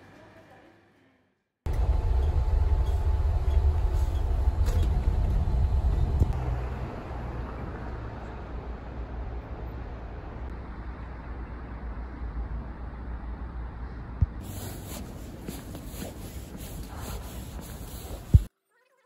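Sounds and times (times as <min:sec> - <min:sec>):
bus engine rumble: 0:01.7 - 0:18.5
road noise: 0:01.7 - 0:18.5.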